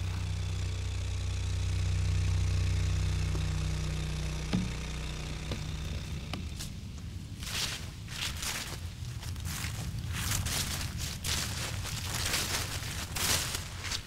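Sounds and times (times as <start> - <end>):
engine humming: 0.0 - 14.0
faint knocks: 4.5 - 4.8.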